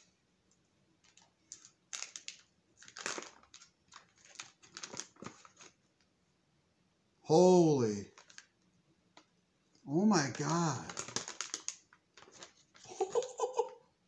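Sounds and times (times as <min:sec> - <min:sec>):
foil pouch crinkling: 0:01.0 - 0:05.8, 0:08.1 - 0:08.5, 0:10.2 - 0:13.4.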